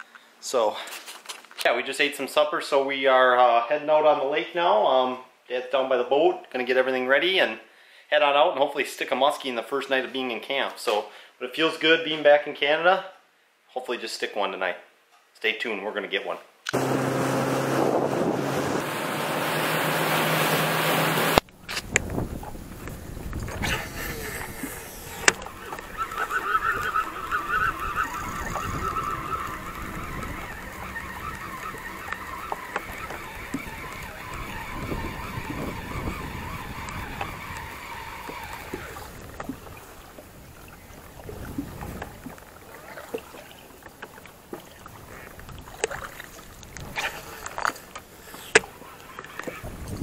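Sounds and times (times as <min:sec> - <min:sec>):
fishing reel whirring: 0:23.8 - 0:39.8.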